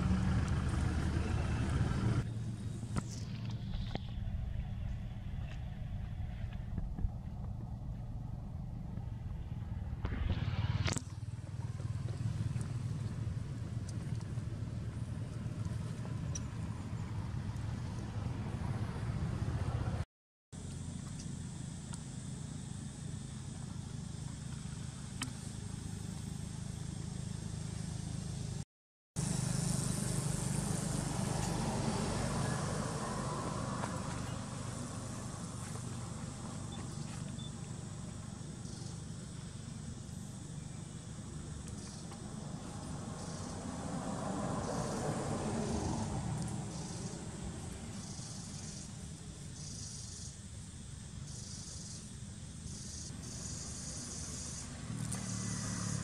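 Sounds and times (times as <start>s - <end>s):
low outdoor rumble: 0.0s - 20.0s, 29.2s - 56.0s
low steady rumble: 0.0s - 20.0s
insects buzzing: 20.6s - 28.6s, 29.2s - 56.0s.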